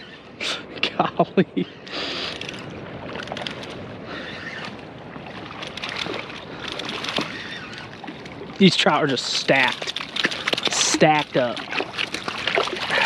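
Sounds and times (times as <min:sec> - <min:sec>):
water lapping at shore: 0:01.6 - 0:13.0.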